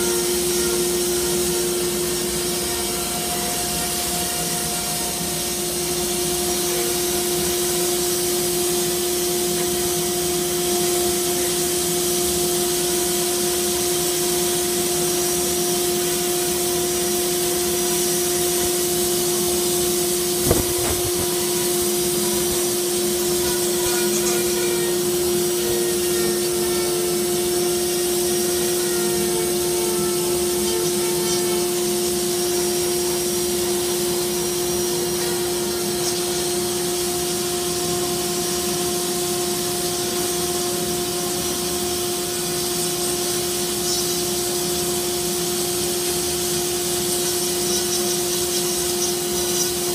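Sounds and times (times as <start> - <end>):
vacuum humming and hissing: 0.0 - 49.9
rotary tool grinding wood: 20.3 - 21.6.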